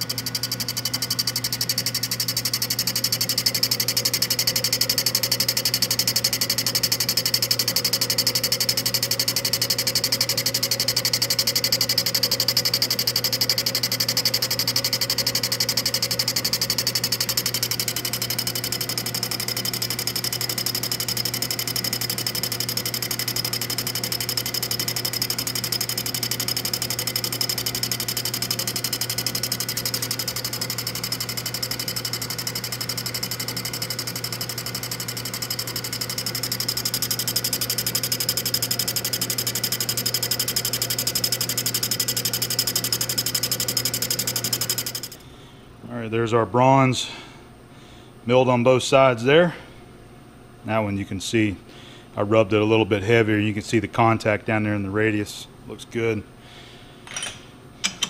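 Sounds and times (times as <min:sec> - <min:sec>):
fast ticking of metal cutting: 0:00.0 - 0:45.2
milling machine motor hum: 0:00.0 - 0:45.3.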